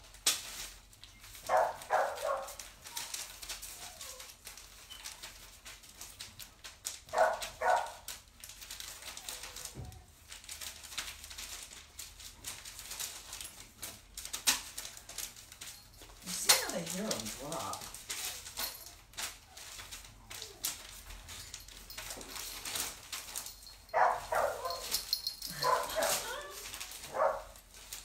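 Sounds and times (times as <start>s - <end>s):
dog barking: 1.5s - 2.6s, 7.1s - 8.0s, 23.9s - 24.9s, 25.5s - 27.6s.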